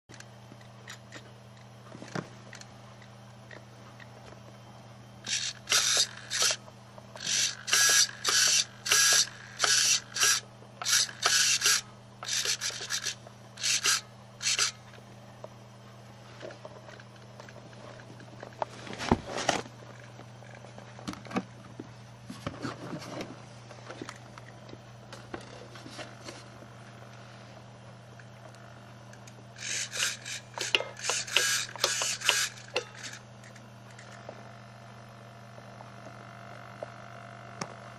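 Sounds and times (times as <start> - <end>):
steady low hum: 0.1 - 37.9
servos whirring: 5.2 - 15.0, 28.1 - 34.6.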